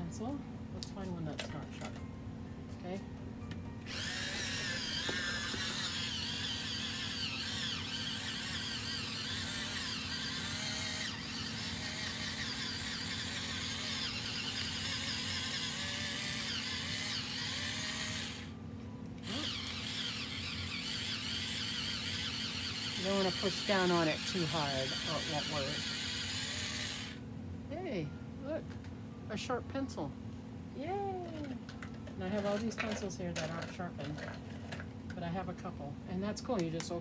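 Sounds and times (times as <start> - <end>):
electric pencil sharpener whirring: 3.8 - 18.6, 19.2 - 27.2.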